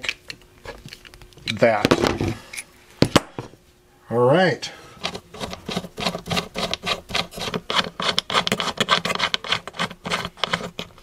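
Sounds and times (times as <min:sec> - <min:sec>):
fingers rubbing metal: 0:05.0 - 0:11.0.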